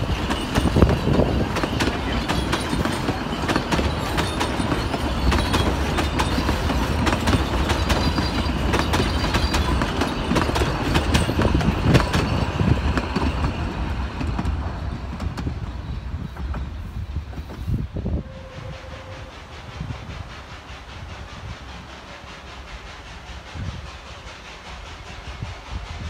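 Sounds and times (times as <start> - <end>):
wheels clicking over rail joints: 0.0 - 15.6
train carriages rumbling: 0.0 - 26.0.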